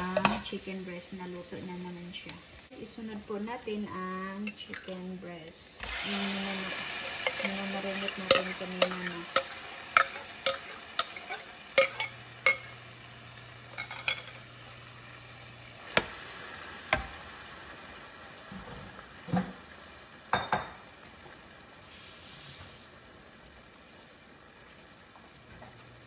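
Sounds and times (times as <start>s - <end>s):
metal spoon clinking on bowl and pan: 0.0s - 0.5s, 4.4s - 4.9s, 7.0s - 12.8s, 13.7s - 14.5s
chicken sizzling in hot oil: 5.8s - 26.0s.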